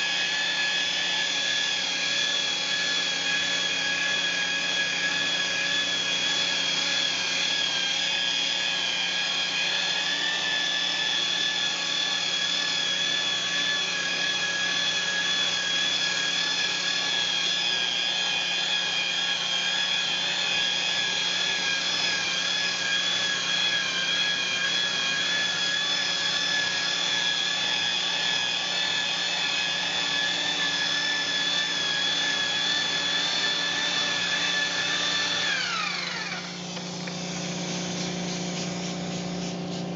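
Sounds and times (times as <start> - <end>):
electric polisher whining: 0.0 - 39.9
polishing pad rubbing surface: 22.0 - 39.9.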